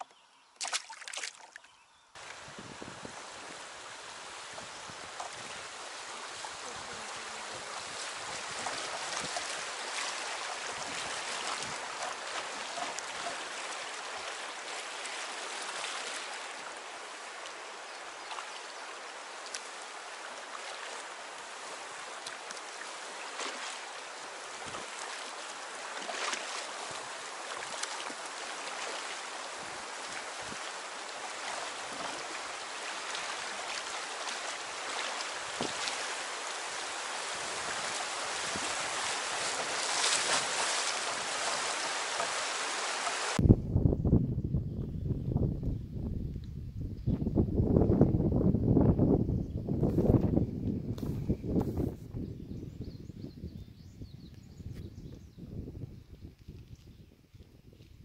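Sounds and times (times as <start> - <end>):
river water rushing: 2.2 - 43.4.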